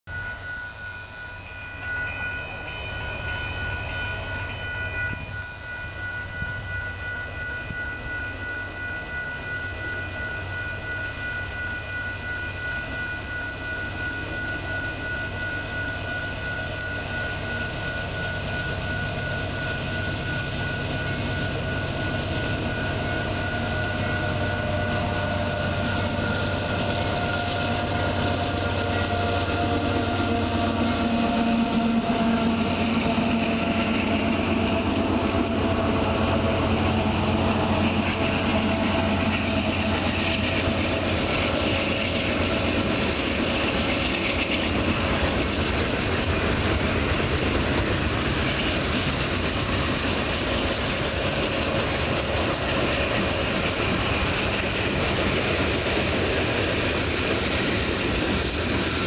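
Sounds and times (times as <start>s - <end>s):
diesel engine low rumble: 16.9s - 59.0s
locomotive air horn chord: 21.9s - 41.0s.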